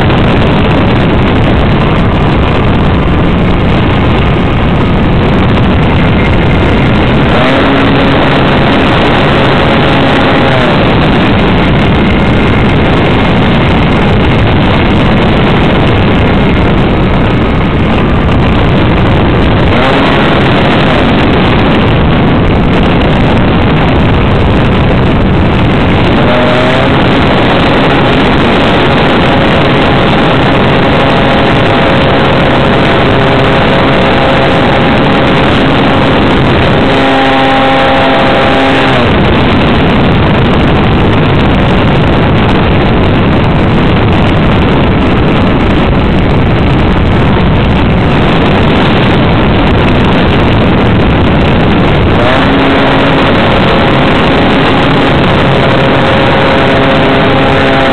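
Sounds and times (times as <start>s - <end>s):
loud wind rush: 0.0s - 57.9s
model aircraft engine drone: 0.0s - 57.9s.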